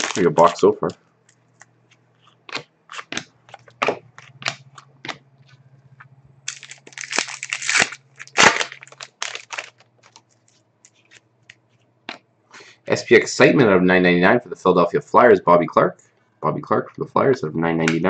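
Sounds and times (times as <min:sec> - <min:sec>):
foil wrapper crinkling: 0:00.0 - 0:05.6, 0:06.4 - 0:11.8.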